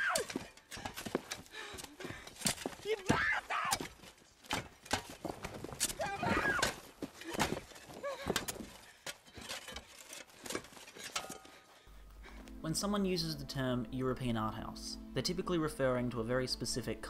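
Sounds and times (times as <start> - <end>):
knocks and cracks of earth and roots: 0.0 - 11.2.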